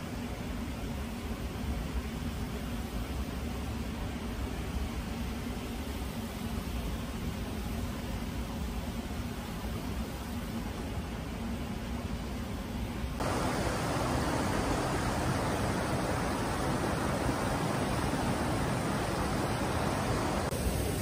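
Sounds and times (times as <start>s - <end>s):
flowing water rushing: 13.2s - 21.0s.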